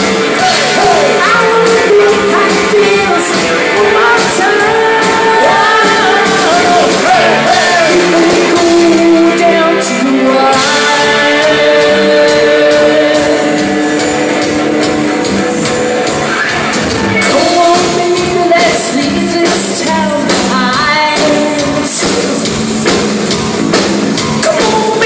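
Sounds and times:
live rock band playing: 0:00.0 - 0:25.0
woman singing into microphone: 0:00.8 - 0:14.2, 0:17.2 - 0:22.5, 0:24.4 - 0:25.0.

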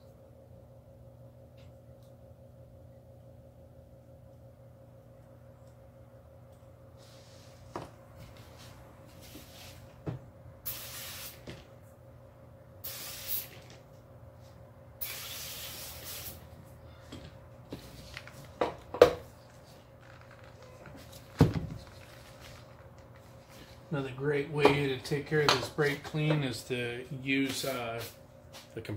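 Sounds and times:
aerosol spray hissing: 0:10.6 - 0:11.4, 0:12.8 - 0:13.6, 0:15.0 - 0:16.4.

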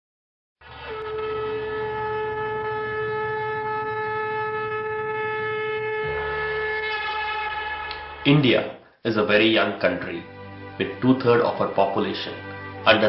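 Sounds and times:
long held note: 0:00.6 - 0:08.8.

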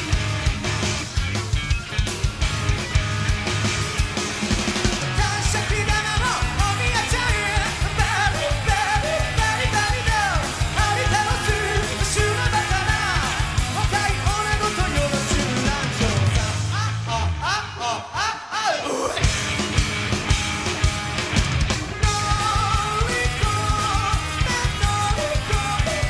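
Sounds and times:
rock band playing live: 0:00.0 - 0:26.0
person singing and shouting: 0:05.1 - 0:19.3, 0:22.0 - 0:26.0.

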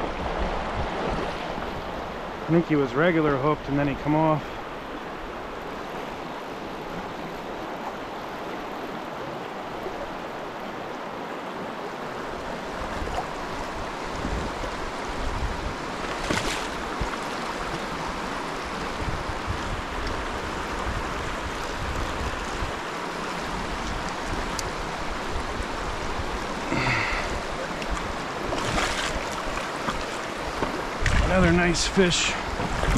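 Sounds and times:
wind rumble on microphone: 0:00.0 - 0:02.5, 0:12.2 - 0:32.9
river rushing over rocks: 0:00.0 - 0:32.9.

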